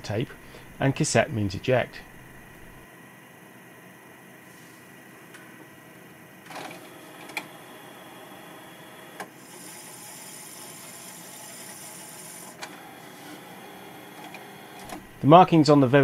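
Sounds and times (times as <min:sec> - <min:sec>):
tape motor whirring: 0:06.5 - 0:15.4.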